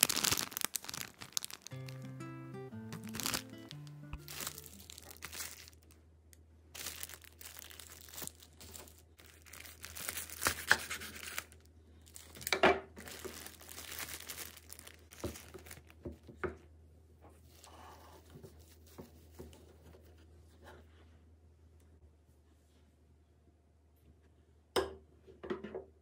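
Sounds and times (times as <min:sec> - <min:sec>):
food packaging crinkling: 0:00.0 - 0:06.0, 0:06.8 - 0:16.0
background music: 0:01.7 - 0:05.2.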